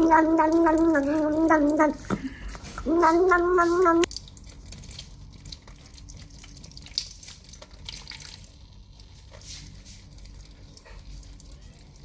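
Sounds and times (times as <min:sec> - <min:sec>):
cat lapping water: 0:00.0 - 0:08.6
water drips and splashes: 0:00.0 - 0:12.0
water trickling from faucet: 0:00.0 - 0:12.0.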